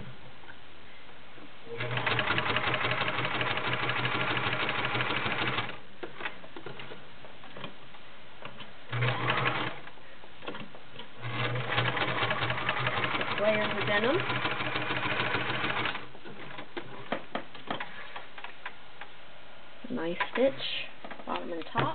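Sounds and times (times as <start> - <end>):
sewing machine stitching: 1.7 - 5.8, 8.9 - 9.8, 11.2 - 16.6.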